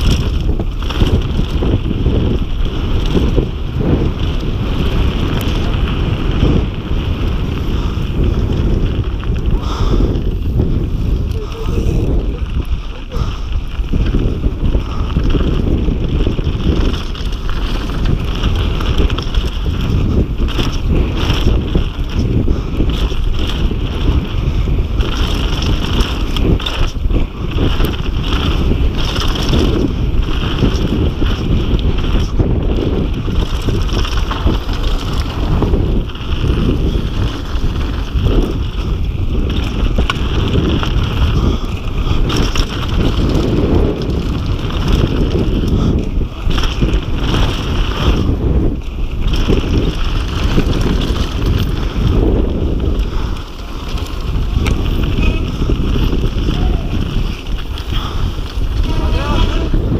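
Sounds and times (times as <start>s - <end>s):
bike knocking and rattling: 0.0s - 59.9s
tyres on dirt: 0.0s - 59.9s
wind rushing over microphone: 0.0s - 59.9s.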